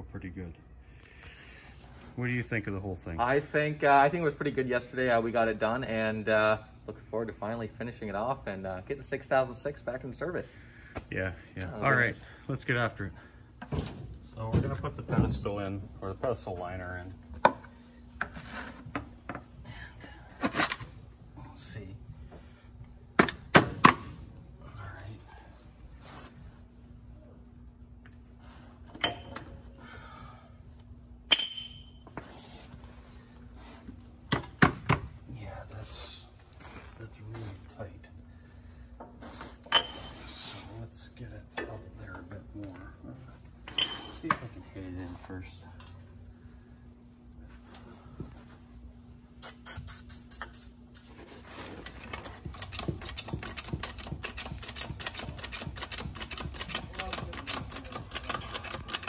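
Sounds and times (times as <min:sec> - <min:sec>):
steady low hum: 0:00.0 - 0:59.0
ringing metallic strike: 0:31.3 - 0:32.0
steel tools clinking on metal: 0:31.3 - 0:32.0, 0:39.7 - 0:40.2, 0:43.7 - 0:44.4, 0:51.8 - 0:59.0
jack clicking metallically: 0:51.8 - 0:59.0.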